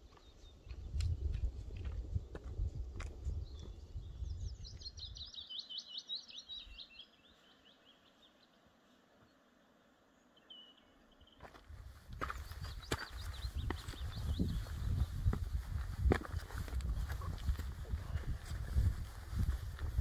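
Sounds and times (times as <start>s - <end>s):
songbird singing: 0.0s - 20.0s.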